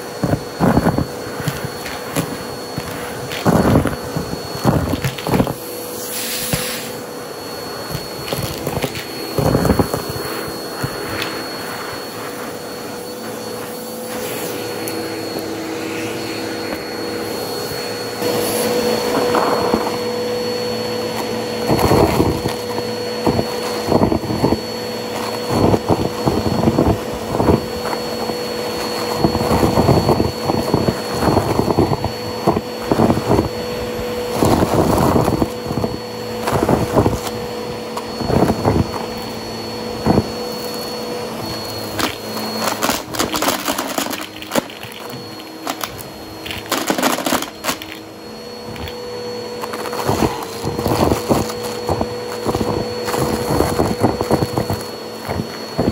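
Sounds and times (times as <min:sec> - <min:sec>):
vacuum cleaner whining: 0:00.0 - 0:55.9
debris crackling and rattling: 0:42.0 - 0:48.1.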